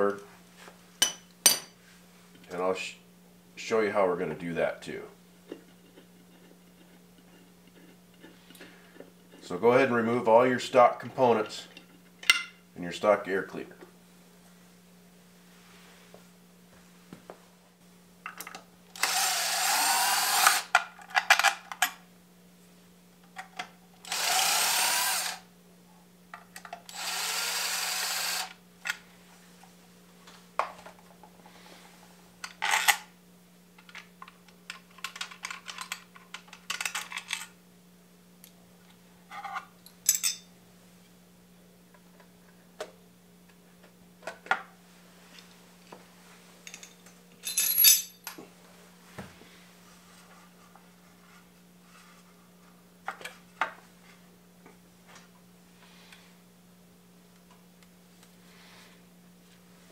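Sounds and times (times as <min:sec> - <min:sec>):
power drill running: 0:19.0 - 0:20.7, 0:24.0 - 0:25.5, 0:26.9 - 0:28.6
metallic clicks and clinks: 0:46.7 - 0:48.4.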